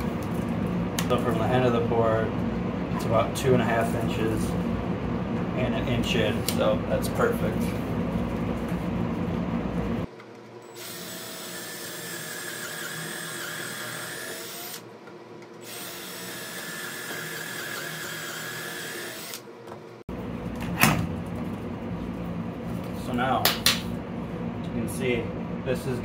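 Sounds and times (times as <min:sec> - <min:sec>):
cordless drill boring into wood: 0:10.7 - 0:14.8, 0:15.6 - 0:19.4.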